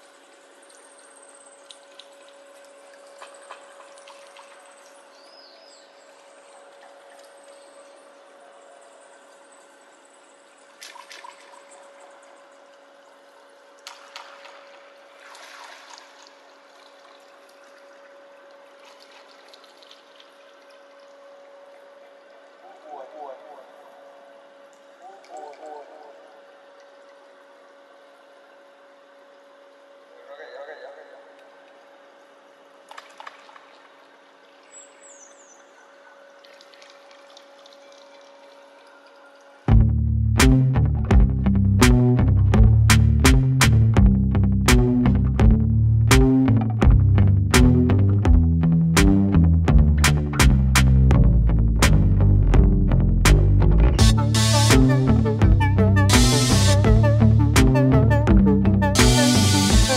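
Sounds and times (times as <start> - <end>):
pool water splashing: 0.0 - 39.7, 59.0 - 59.9
low hum: 0.0 - 59.9.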